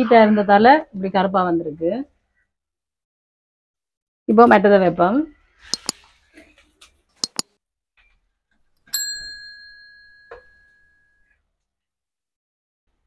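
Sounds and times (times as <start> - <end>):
metallic bell-like ding: 9.0 - 11.1.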